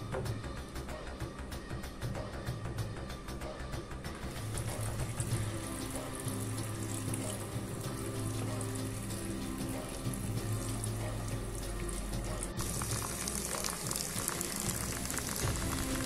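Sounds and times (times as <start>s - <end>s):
water splashing onto pebbles: 12.5s - 16.0s.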